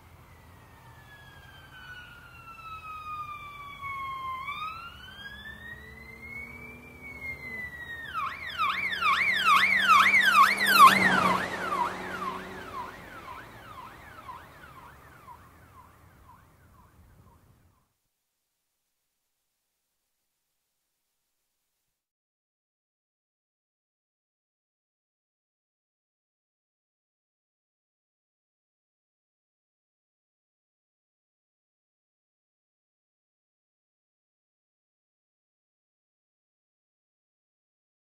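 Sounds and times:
police car siren: 0:00.1 - 0:17.4.

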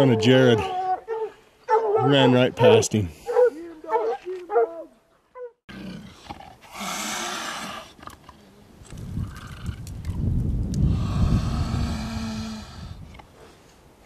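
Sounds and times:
hound baying: 0:00.0 - 0:05.6
mountain lion hissing: 0:05.8 - 0:08.0.

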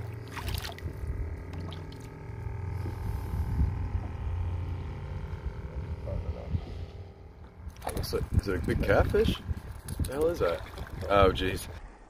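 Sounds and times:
water splashing: 0:00.0 - 0:02.2, 0:07.7 - 0:08.4, 0:10.0 - 0:11.4
low steady rumble: 0:00.0 - 0:12.0.

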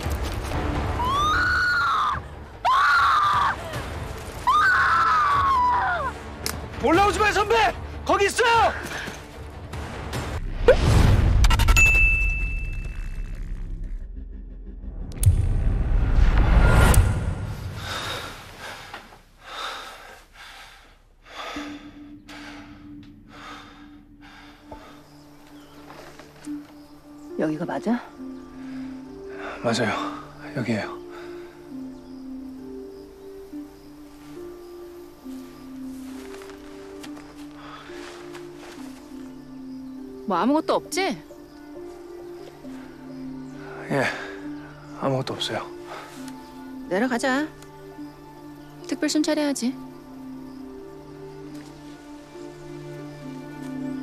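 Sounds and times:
person breathing hard: 0:17.7 - 0:25.2.

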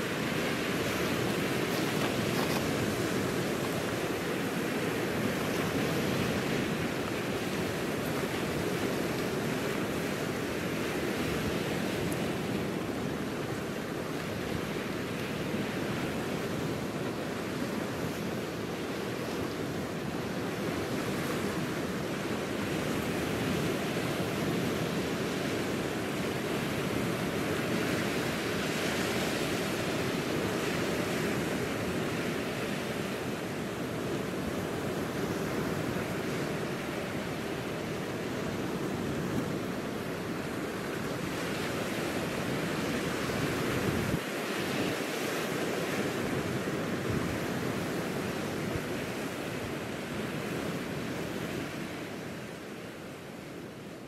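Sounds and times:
waves breaking on rocks: 0:00.0 - 0:13.4.

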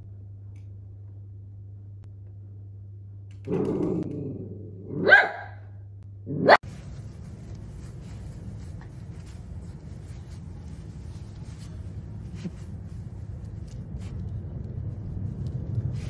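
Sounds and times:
dog growling: 0:03.4 - 0:05.1
dog barking: 0:04.9 - 0:05.7, 0:06.3 - 0:06.6.

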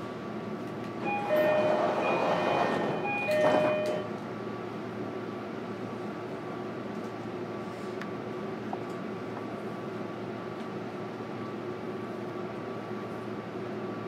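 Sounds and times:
train hum: 0:00.0 - 0:14.0
train doors shutting with thud: 0:00.8 - 0:04.2
two-note door chime: 0:01.1 - 0:04.1.

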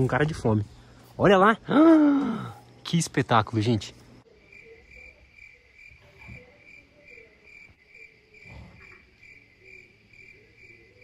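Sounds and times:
crickets chirping: 0:04.2 - 0:11.0.

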